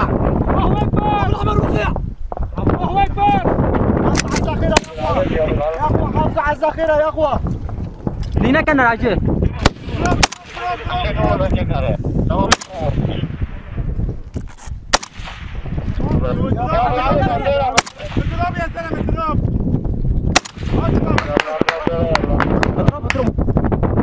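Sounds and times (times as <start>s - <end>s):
rifle shots: 4.2s - 5.5s, 9.6s - 10.9s, 12.5s - 13.8s, 14.9s - 15.9s, 17.7s - 18.4s, 20.3s - 21.8s.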